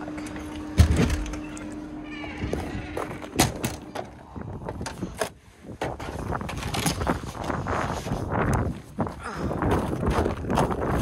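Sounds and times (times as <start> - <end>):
steady hum: 0.0 - 6.5
door thumping open: 0.8 - 1.4.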